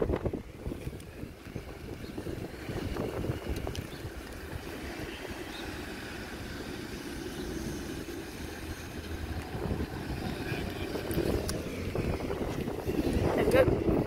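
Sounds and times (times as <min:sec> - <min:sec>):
low rumble: 0:05.5 - 0:14.0.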